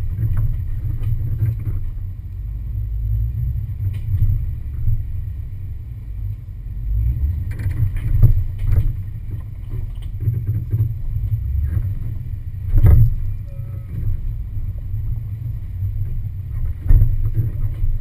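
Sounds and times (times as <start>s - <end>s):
knocks and clatters: 0.0s - 2.1s, 7.4s - 18.0s
off-road vehicle engine rumble: 0.0s - 18.0s
wind buffeting microphone: 0.0s - 18.0s.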